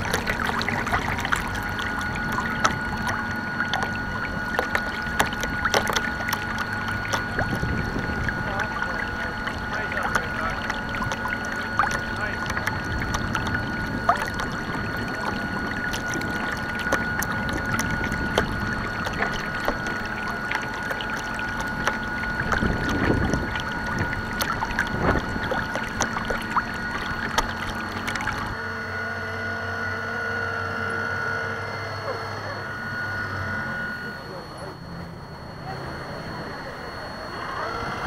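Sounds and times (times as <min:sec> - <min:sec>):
water splashing against boat hull: 0:00.0 - 0:28.6
steady high whine: 0:00.0 - 0:38.0.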